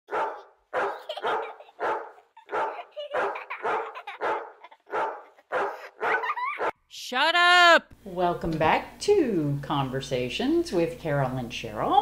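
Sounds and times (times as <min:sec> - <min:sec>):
dog barking: 0:00.1 - 0:06.8.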